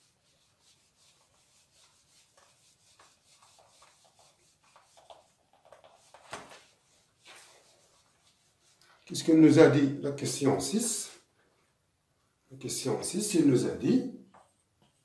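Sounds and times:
whiteboard being wiped by hand: 0:00.0 - 0:09.4.

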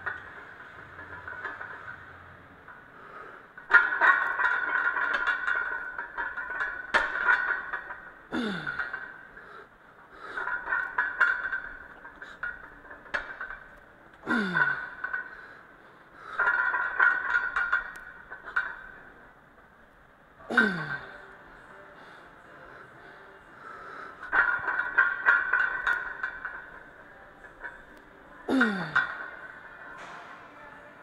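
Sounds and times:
barbell plates clinking: 0:00.0 - 0:19.7, 0:20.5 - 0:31.0
person grunting: 0:08.3 - 0:08.8, 0:20.5 - 0:21.0, 0:28.5 - 0:29.0.

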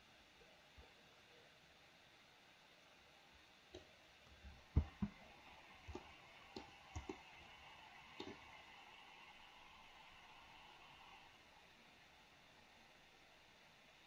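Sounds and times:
keyboard taps: 0:04.8 - 0:05.2
computer mouse clicks: 0:05.9 - 0:07.5, 0:08.1 - 0:08.5.

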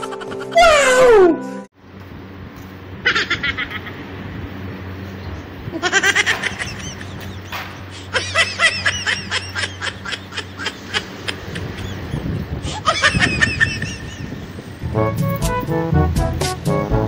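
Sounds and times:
high-pitched giggling laughter: 0:00.0 - 0:01.2, 0:03.0 - 0:04.1, 0:05.7 - 0:14.5
steady low hum: 0:01.7 - 0:17.0.

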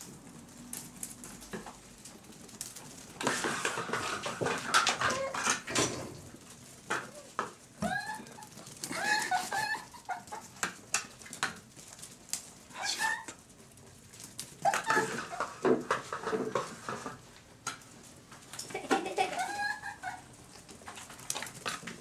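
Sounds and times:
animal pups crying: 0:04.9 - 0:05.5, 0:07.0 - 0:10.6, 0:12.7 - 0:13.4, 0:14.6 - 0:15.6, 0:19.2 - 0:20.4.

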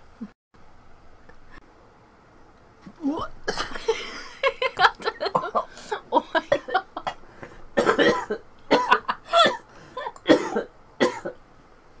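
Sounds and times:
person coughing: 0:03.1 - 0:04.3, 0:05.2 - 0:07.2, 0:07.8 - 0:11.4.

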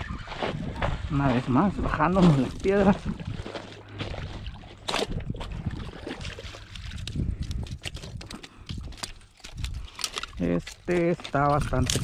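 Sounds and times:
footsteps on loose rocks: 0:00.0 - 0:12.0.

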